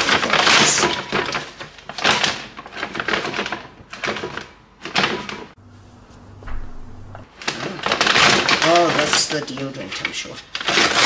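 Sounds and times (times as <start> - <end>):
paper bag rustling: 0.0 - 11.0
quiet low hum: 5.6 - 7.7.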